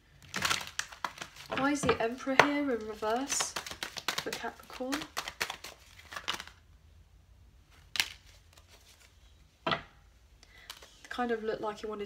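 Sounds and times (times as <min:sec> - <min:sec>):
cards being shuffled: 0:00.4 - 0:06.6.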